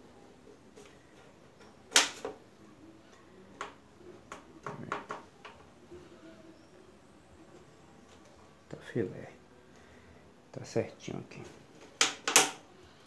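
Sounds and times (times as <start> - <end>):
plastic pipe knocking and clicking: 3.6 - 5.6.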